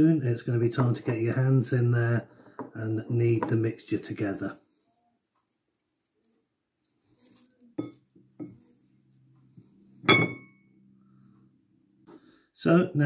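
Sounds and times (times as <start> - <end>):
glass dishes clinking on glass bowl: 7.8 - 8.6, 10.1 - 10.6.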